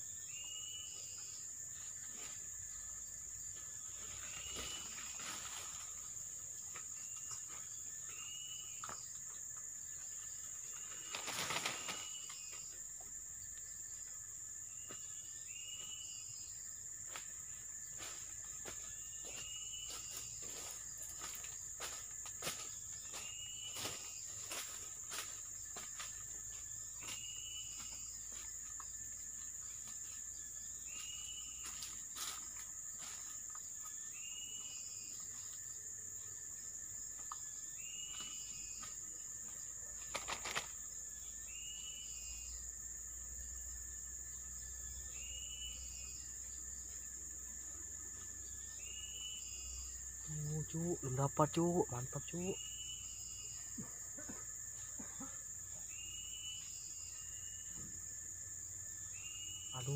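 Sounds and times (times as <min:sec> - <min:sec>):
insects droning: 0:00.0 - 0:59.9
small clicks and rustles: 0:40.0 - 0:40.8.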